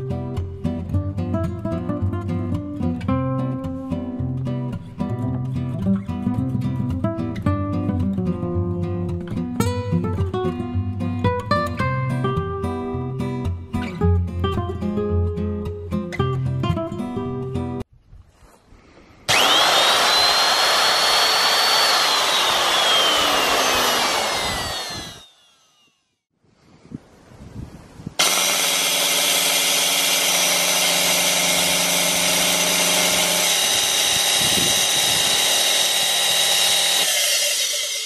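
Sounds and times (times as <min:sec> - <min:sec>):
power tool motor whining: 0:19.3 - 0:26.1, 0:28.2 - 0:38.0.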